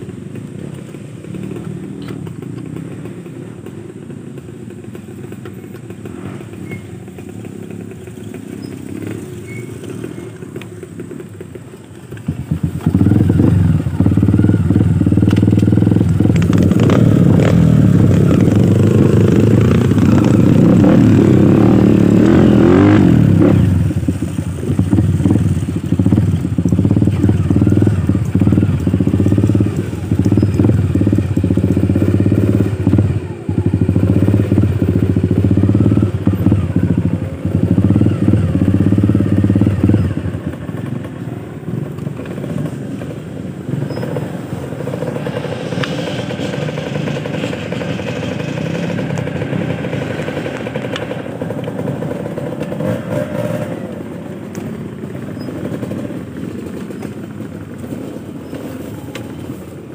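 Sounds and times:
dirt bike engine revving: 0:12.3 - 0:40.4.

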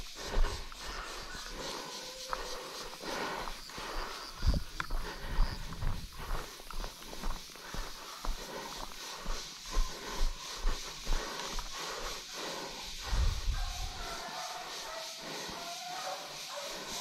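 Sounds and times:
footsteps on brushy ground: 0:00.0 - 0:17.0
hard breathing: 0:00.0 - 0:17.0.

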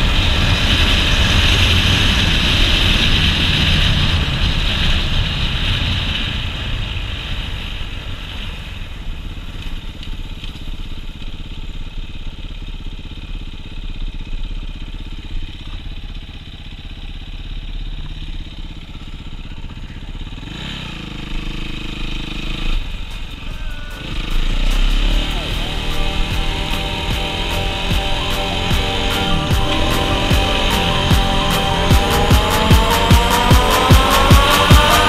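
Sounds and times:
wind rush: 0:00.0 - 0:08.9
dirt bike engine running: 0:00.0 - 0:35.0.

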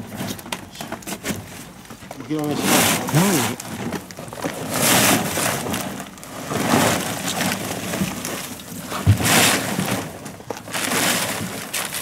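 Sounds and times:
plastic bags rustling and crinkling: 0:00.0 - 0:12.0.

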